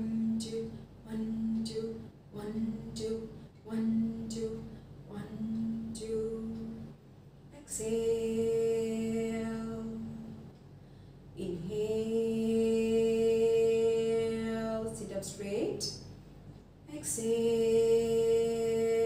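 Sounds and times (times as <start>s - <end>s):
woman chanting: 0.0s - 6.9s, 7.5s - 10.5s, 11.4s - 16.1s, 16.9s - 19.0s.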